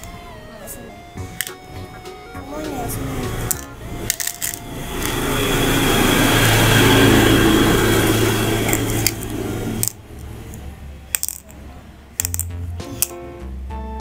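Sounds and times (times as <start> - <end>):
motor-like rushing hum: 1.2 - 12.1
seeds clicking into plastic board: 11.1 - 11.6, 12.2 - 13.2.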